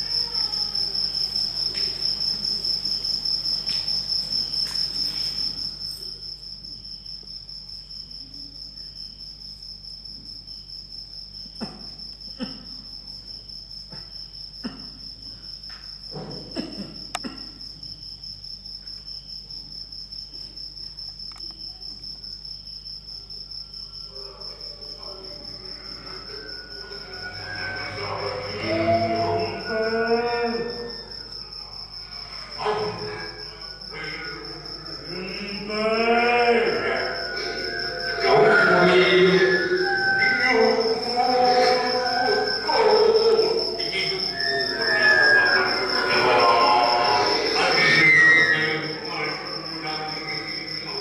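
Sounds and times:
cricket chirping: 0.0 - 51.0
faint music: 23.1 - 51.0.

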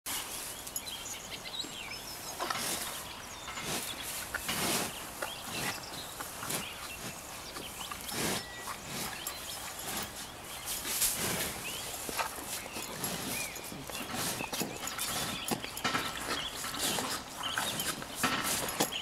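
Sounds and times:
birds chirping: 0.1 - 19.0
cow tongue licking: 2.4 - 19.0.

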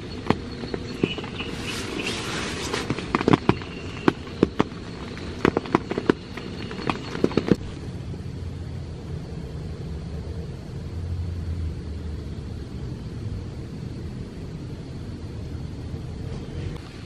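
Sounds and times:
sleeping bag rustle: 0.0 - 7.9
steady low rumble: 0.0 - 17.0
raindrops tapping on tent fabric: 0.2 - 7.6.

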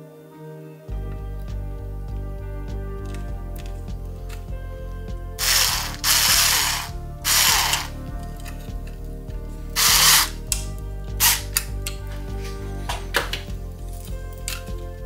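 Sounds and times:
electric screwdriver whirring: 5.4 - 7.9, 9.8 - 10.4.

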